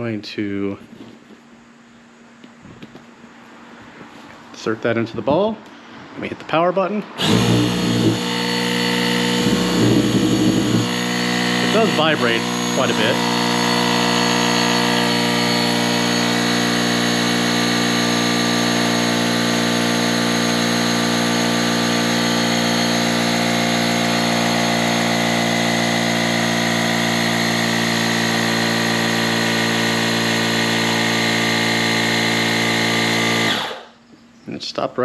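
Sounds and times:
small air compressor running: 7.2 - 34.0.

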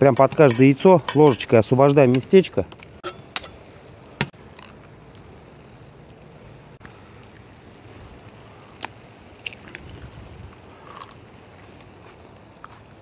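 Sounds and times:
sauce bubbling in a skillet: 3.4 - 13.0.

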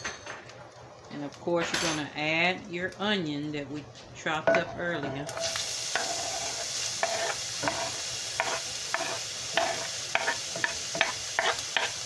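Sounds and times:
onion sizzling in a skillet: 4.6 - 12.0
scraping on cutting board: 5.4 - 12.0.

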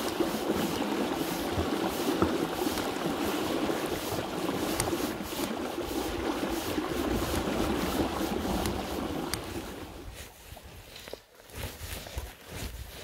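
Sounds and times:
river flowing over gravel: 0.0 - 10.2.

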